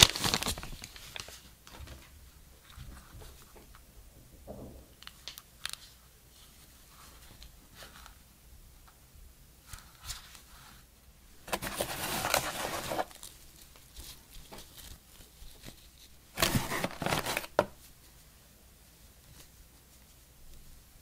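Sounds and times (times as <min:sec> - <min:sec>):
packaging rustling: 0:00.0 - 0:01.5, 0:11.4 - 0:17.8.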